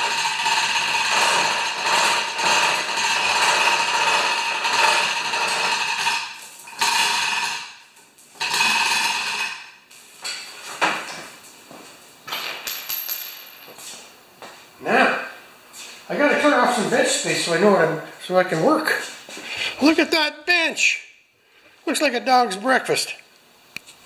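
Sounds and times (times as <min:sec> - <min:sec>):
hoist chain rattling with ratchet clicks: 0:00.0 - 0:07.6.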